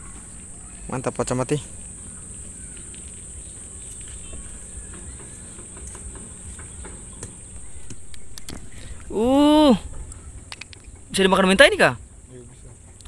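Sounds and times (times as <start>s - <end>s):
high-pitched insect chorus: 0.0s - 13.0s
low outdoor rumble: 0.0s - 13.0s.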